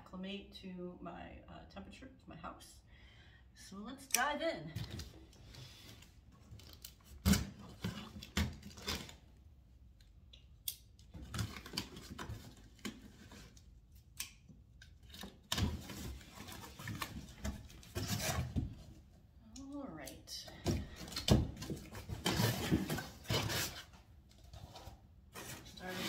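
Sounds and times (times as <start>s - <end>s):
cardboard rustling and scraping: 15.2s - 19.1s, 21.0s - 26.0s.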